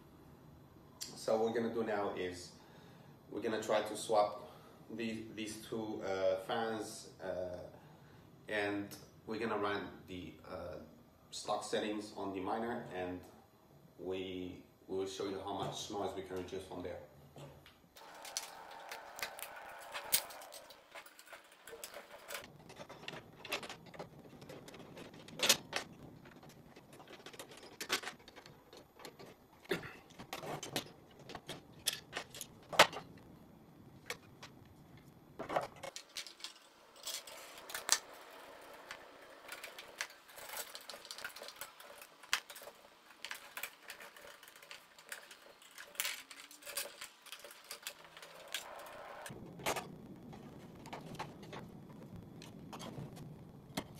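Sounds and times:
screws and fan parts rattling: 18.0 - 33.1, 35.4 - 49.3.

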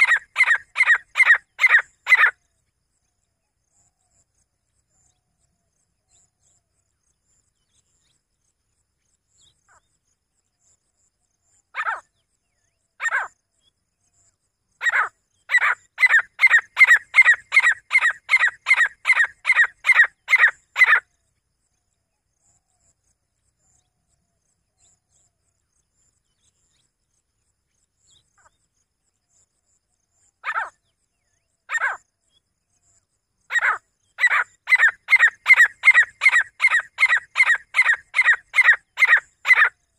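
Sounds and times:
francolin calling: 0.0 - 2.4, 14.8 - 21.1, 30.4 - 30.8, 31.7 - 32.0, 33.5 - 39.8.

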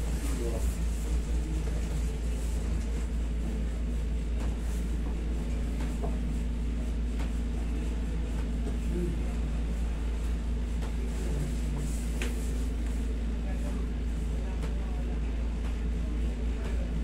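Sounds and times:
air conditioner humming: 0.0 - 17.0.

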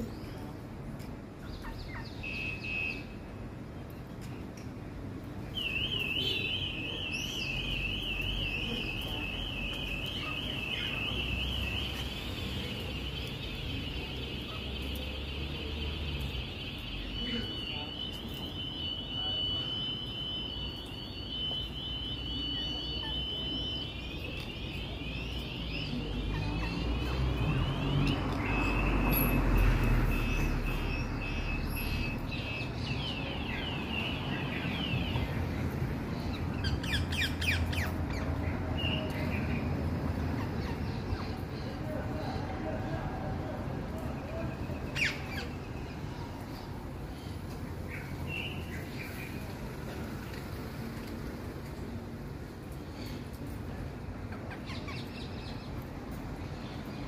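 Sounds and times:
car alarm siren: 6.0 - 12.4, 16.3 - 26.2.

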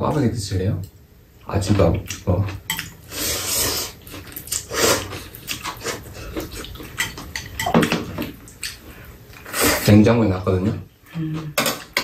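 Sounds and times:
eating noises: 2.0 - 7.6
noodles being slurped: 3.1 - 6.9.

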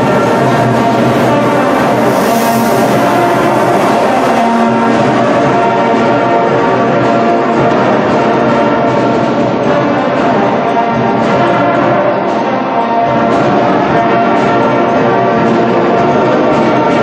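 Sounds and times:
music with sustained chords: 0.0 - 11.1.

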